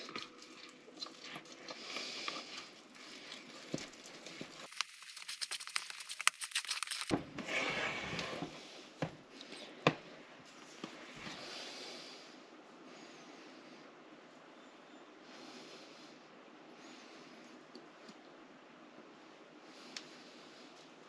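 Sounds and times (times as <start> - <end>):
sticky dough squishing: 0.0 - 7.2
spoon scraping dough: 2.3 - 8.5.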